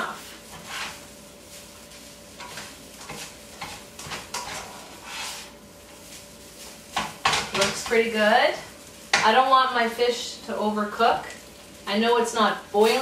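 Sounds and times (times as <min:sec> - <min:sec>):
utensil scraping a frying pan: 0:00.0 - 0:09.5
light sizzle: 0:00.0 - 0:13.0.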